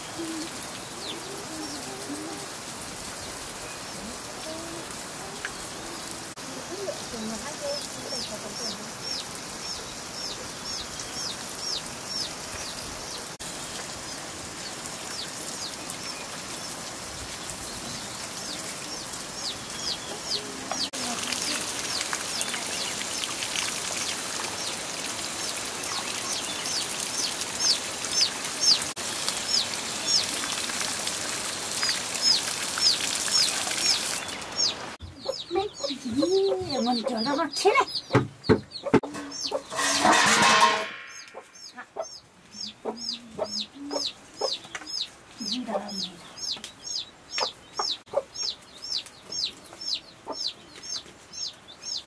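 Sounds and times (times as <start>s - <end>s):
high falling bird chirps: 31.8s - 52.0s.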